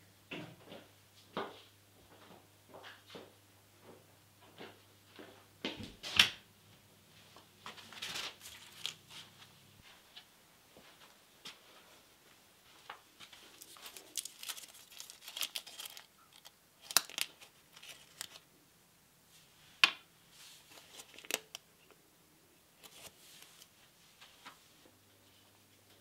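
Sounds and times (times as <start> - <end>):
crinkly wrapper crackling: 7.9 - 9.2, 13.2 - 18.5, 20.6 - 21.7, 22.8 - 23.7.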